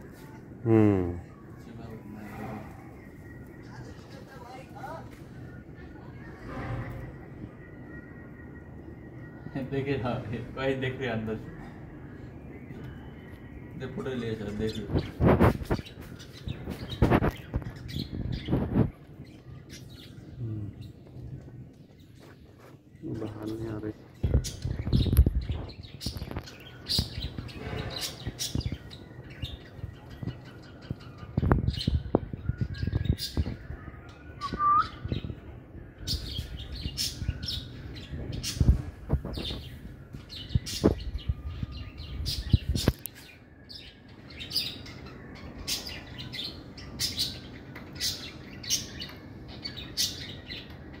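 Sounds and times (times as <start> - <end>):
birds chirping: 0.0 - 51.0.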